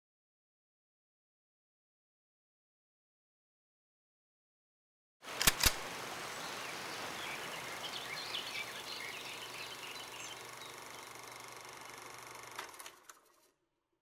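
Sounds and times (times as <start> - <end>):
sharp clicks: 5.3 - 5.9
steady hiss: 5.3 - 12.0.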